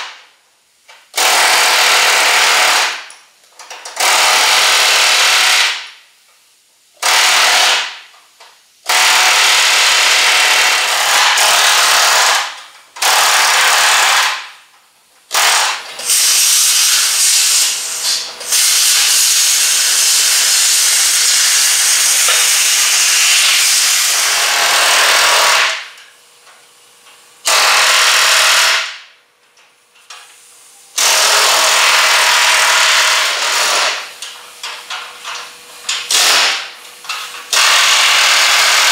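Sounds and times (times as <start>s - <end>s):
power tool cutting steel: 15.4s - 25.9s, 27.4s - 29.0s, 31.0s - 34.1s, 37.5s - 38.9s.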